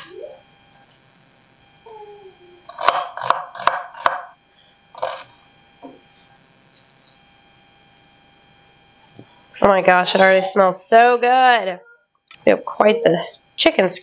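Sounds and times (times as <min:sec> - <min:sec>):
knife chopping on wooden board: 0:02.7 - 0:04.3.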